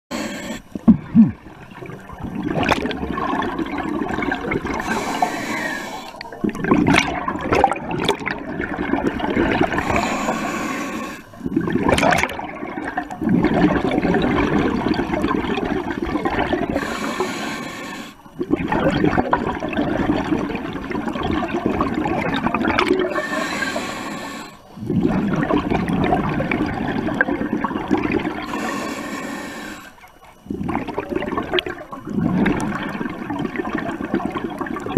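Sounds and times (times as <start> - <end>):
regulator inhale hiss: 0.1 - 0.8, 4.7 - 6.3, 9.8 - 11.4, 16.8 - 18.3, 23.1 - 24.8, 28.4 - 30.1
bubbling exhale: 0.1 - 1.8, 2.4 - 12.3, 16.2 - 19.1, 22.7 - 34.4.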